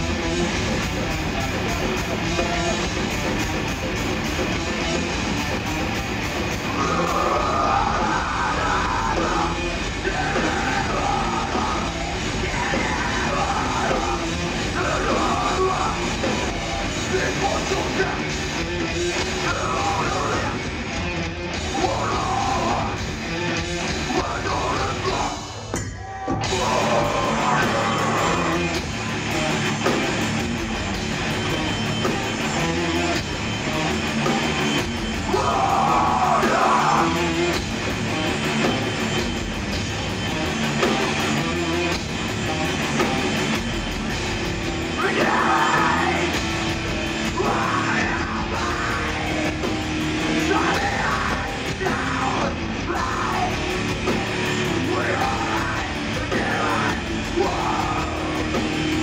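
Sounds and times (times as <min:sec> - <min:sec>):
bass guitar: 0:00.0 - 0:59.0
distorted electric guitars: 0:00.0 - 0:59.0
drum kit: 0:00.0 - 0:59.0
shouted vocals: 0:06.7 - 0:16.3, 0:21.6 - 0:23.0, 0:24.1 - 0:28.8, 0:35.2 - 0:37.6, 0:44.9 - 0:46.4, 0:47.2 - 0:54.0, 0:54.6 - 0:59.0.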